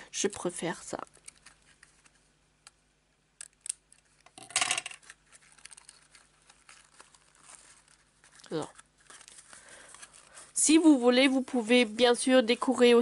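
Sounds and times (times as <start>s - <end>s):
paper box handled: 5.0s - 11.0s.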